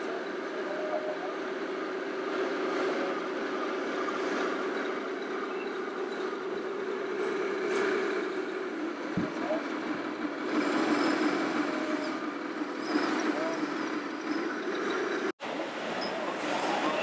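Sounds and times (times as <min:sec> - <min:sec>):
model tank engine drone: 0:00.0 - 0:17.0.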